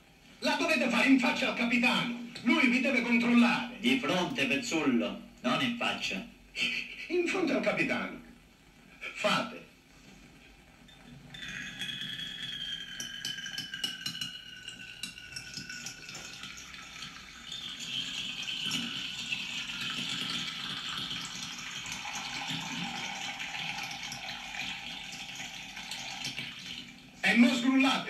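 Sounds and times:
ringing tone sliding downward: 0:10.9 - 0:15.4
urine streaming into glass: 0:11.3 - 0:27.6.

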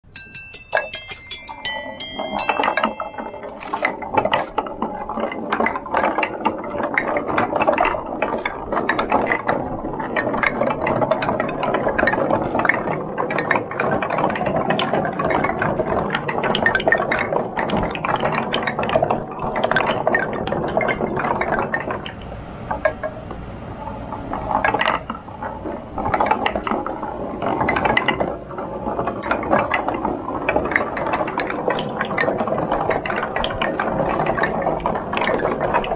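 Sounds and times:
short high ringing tones: 0:00.0 - 0:04.6.

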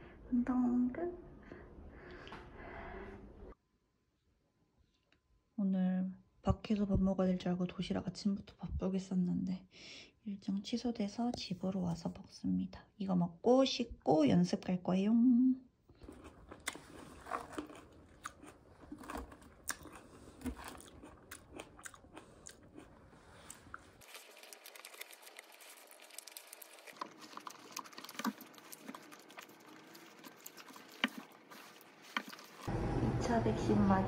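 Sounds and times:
chewing: 0:15.9 - 0:32.7.

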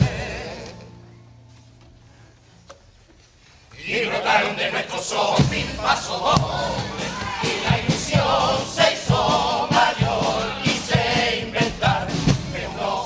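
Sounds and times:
steady beat: 0:05.3 - 0:13.0
men singing in chorus: 0:07.4 - 0:13.0.

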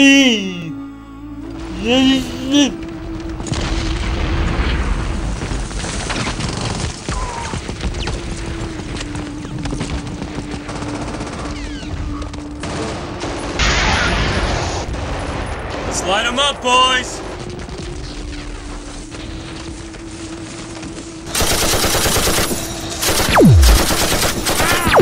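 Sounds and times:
low steady drone: 0:00.0 - 0:05.4, 0:17.4 - 0:25.0
explosions: 0:02.9 - 0:08.4, 0:12.6 - 0:19.4, 0:23.0 - 0:25.0
rapid gunfire: 0:10.3 - 0:11.9, 0:21.3 - 0:25.0.

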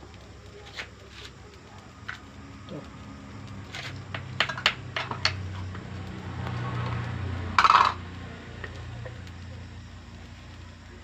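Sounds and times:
spatula scraping wok: 0:03.7 - 0:05.8
spatula tapping metal wok: 0:04.1 - 0:05.5.

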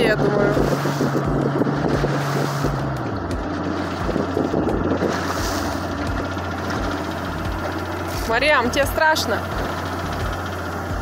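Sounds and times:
wind on microphone: 0:00.0 - 0:07.0
boat motor running: 0:00.0 - 0:11.0
water rushing past hull: 0:00.0 - 0:11.0.

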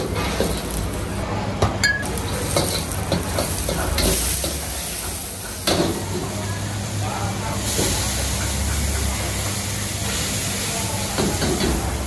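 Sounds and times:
food sizzling in a wok: 0:00.0 - 0:01.2, 0:02.0 - 0:12.0.

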